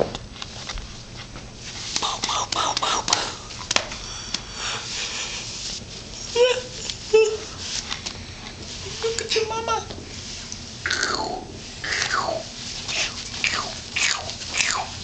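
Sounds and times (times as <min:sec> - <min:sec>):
hands patting laptop keyboard: 0:01.8 - 0:04.5.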